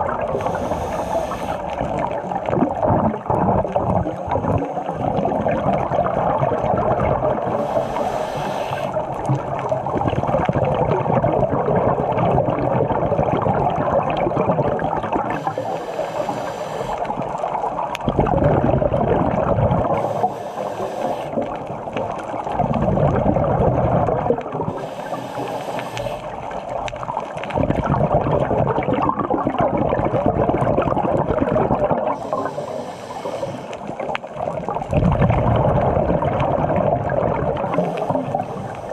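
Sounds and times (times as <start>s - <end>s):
bubbling exhalation: 0.0s - 38.9s
underwater water noise: 0.0s - 38.9s
scuba regulator breathing: 0.2s - 2.2s, 7.4s - 9.3s, 15.0s - 17.9s, 19.8s - 22.2s, 24.6s - 26.7s, 31.9s - 34.4s, 37.5s - 38.9s.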